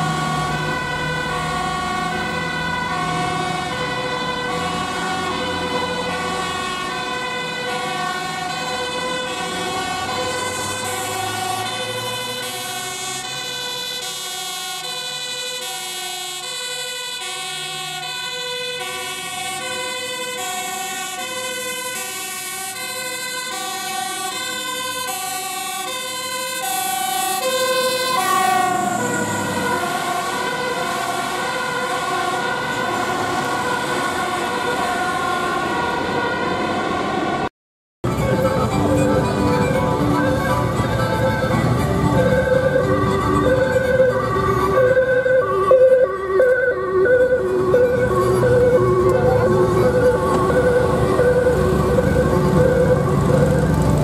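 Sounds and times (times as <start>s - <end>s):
fire engine two-tone siren: 0.0s - 54.0s.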